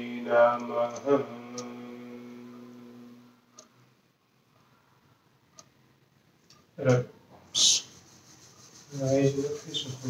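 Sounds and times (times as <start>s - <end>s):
man chanting low hum: 0.0s - 3.4s, 8.9s - 10.0s.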